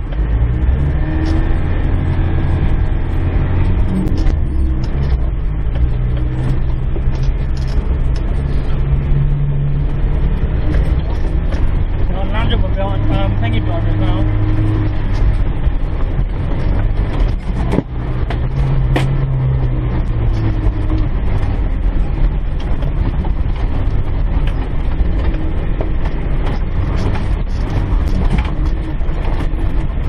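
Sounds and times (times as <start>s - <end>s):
diesel engine rumble: 0.0s - 30.0s
vehicle knocks and rattles: 0.0s - 30.0s.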